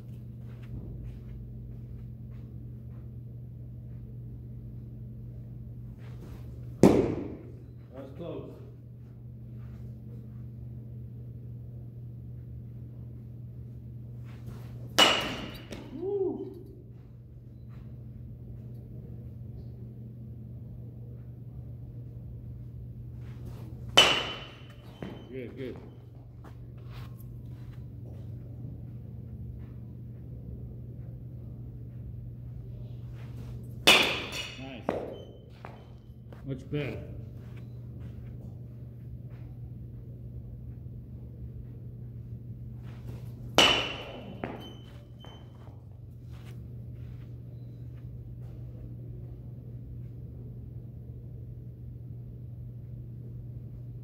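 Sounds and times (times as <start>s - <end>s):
faint scuffs: 0.0s - 3.2s, 24.7s - 28.5s, 44.3s - 48.8s
low electrical hum: 0.0s - 54.0s
baseball bat hitting ball: 6.7s - 7.6s, 14.5s - 16.6s, 23.4s - 25.9s, 33.4s - 36.0s, 43.1s - 45.6s
ringing ping: 15.0s - 15.9s, 24.0s - 25.4s, 43.6s - 45.7s.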